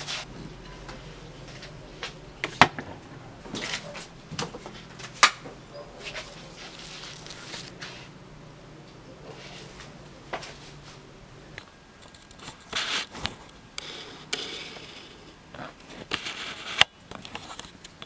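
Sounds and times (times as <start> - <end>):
handling rustle: 5.8 - 8.1.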